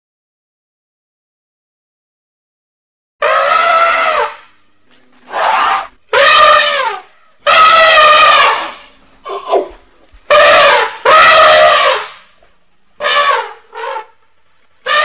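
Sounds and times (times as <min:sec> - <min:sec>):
elephant trumpeting: 0:03.2 - 0:04.5, 0:05.3 - 0:12.3, 0:13.0 - 0:14.2.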